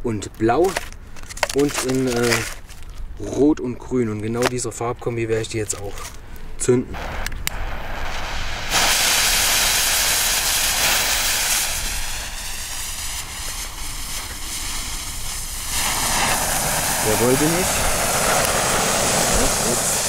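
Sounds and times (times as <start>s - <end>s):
flares hissing and fizzing: 7.0s - 20.0s.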